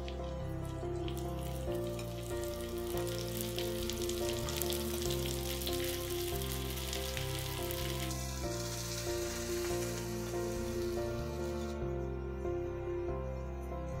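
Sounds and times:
flowers sizzling in hot oil: 0:00.0 - 0:11.9
background music: 0:00.0 - 0:14.0.

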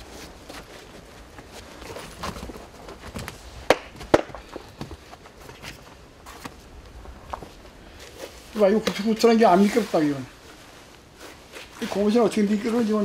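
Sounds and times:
shuffling footsteps: 0:00.0 - 0:13.0
sharp knocks: 0:03.7 - 0:04.4.

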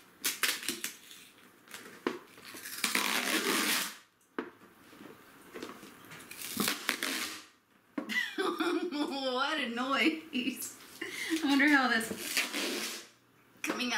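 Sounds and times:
packing tape ripping: 0:00.2 - 0:04.1, 0:06.2 - 0:07.6, 0:12.2 - 0:13.1.

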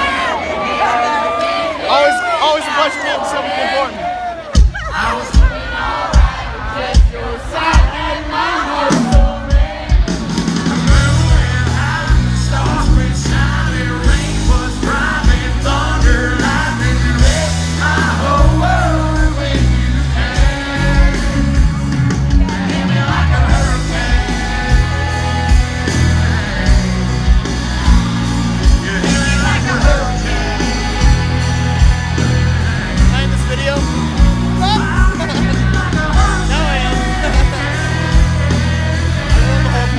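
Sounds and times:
live country-rock band: 0:04.0 - 0:39.9
man singing: 0:10.7 - 0:21.8, 0:28.7 - 0:31.4, 0:34.6 - 0:39.9.

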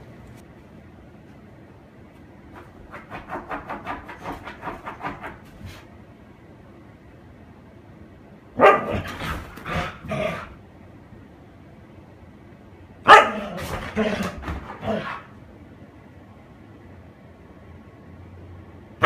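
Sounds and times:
dog barking: 0:08.6 - 0:10.4, 0:13.0 - 0:15.3.

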